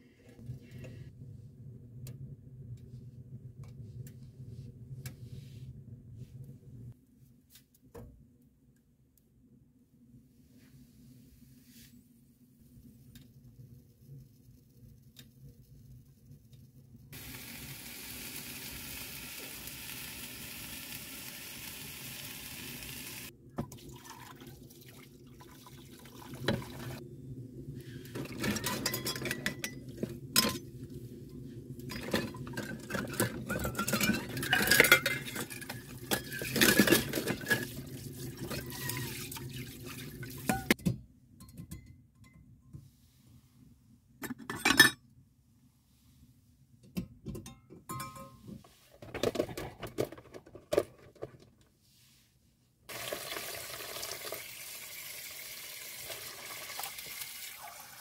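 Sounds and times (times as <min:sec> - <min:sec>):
steady hiss: 0:17.2 - 0:23.3
dishes clinking and scraping: 0:28.2 - 0:30.7, 0:31.9 - 0:39.1, 0:44.2 - 0:45.0, 0:47.4 - 0:50.8.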